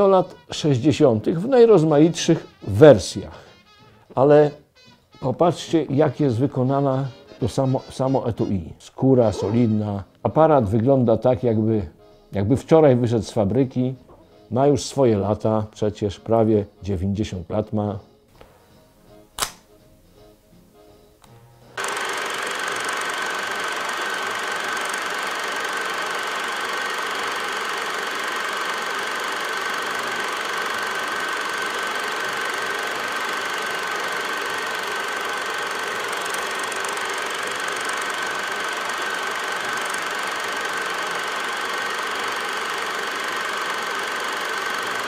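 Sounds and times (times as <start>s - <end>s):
small machine whirring: 21.8s - 45.0s.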